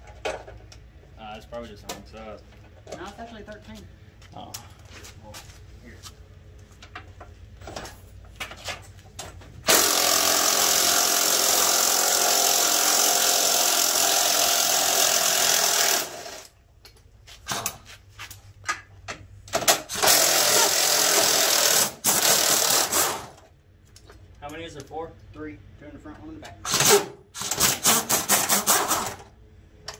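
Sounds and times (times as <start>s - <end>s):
pneumatic wrench running: 9.6s - 16.5s, 19.6s - 23.4s, 26.6s - 29.3s.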